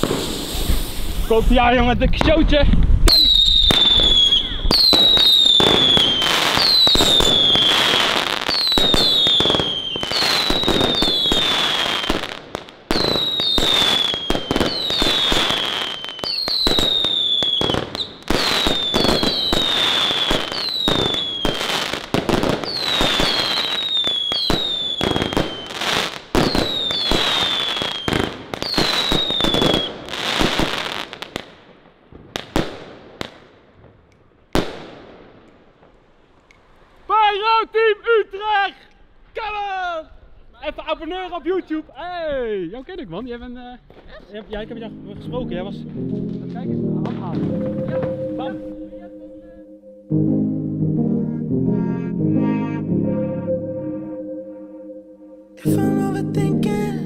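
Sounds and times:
fireworks whistles and bangs: 0.0s - 1.6s, 2.2s - 31.5s, 47.1s - 49.1s
fireworks barrage and crackle: 0.0s - 37.2s, 43.8s - 49.0s.

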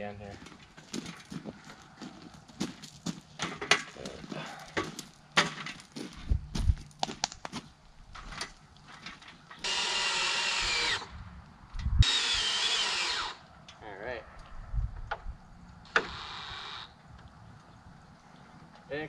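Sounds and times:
power drill driving screw: 9.6s - 11.1s, 12.0s - 13.4s, 15.9s - 16.9s.

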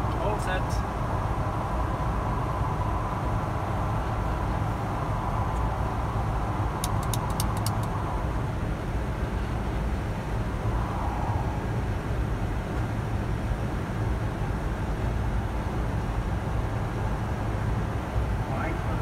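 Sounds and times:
jet engine and airflow rumble: 0.0s - 19.0s
sharp clicks: 6.8s - 8.0s.

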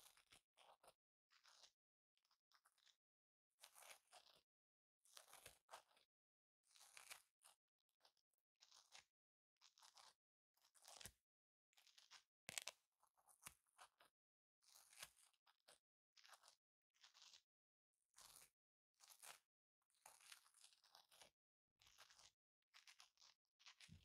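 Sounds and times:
velcro scratching: 3.6s - 4.4s, 8.6s - 11.2s, 11.8s - 12.8s, 14.6s - 15.4s, 16.2s - 17.4s, 18.2s - 19.4s, 20.0s - 24.0s.

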